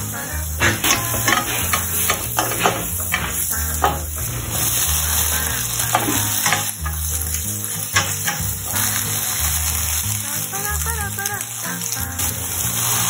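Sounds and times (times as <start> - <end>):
garlic and leeks sizzling in oil: 0.0 - 13.0
wooden spoon scraping a pan: 0.5 - 10.0.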